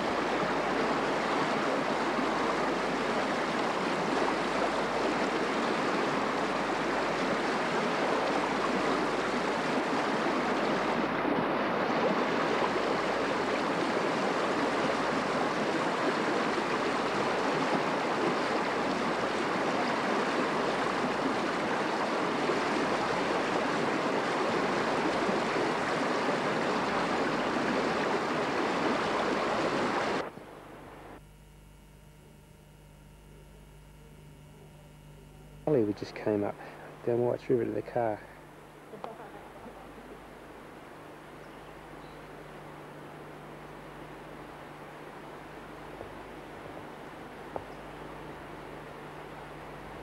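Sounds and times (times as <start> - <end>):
river rushing over rocks: 0.0 - 30.3.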